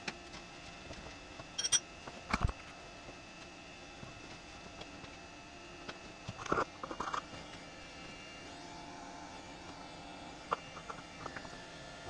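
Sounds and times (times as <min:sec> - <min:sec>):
faint shop hum: 0:00.0 - 0:12.0
tools knocking and clinking: 0:01.6 - 0:01.8.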